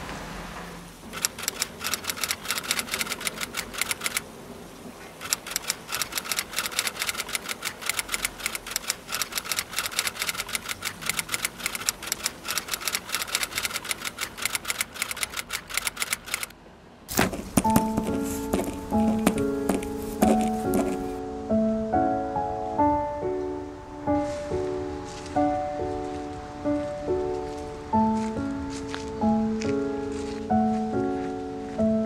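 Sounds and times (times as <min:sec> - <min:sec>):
keyboard typing clicks: 0:01.2 - 0:04.2, 0:05.2 - 0:16.5, 0:17.2 - 0:21.0.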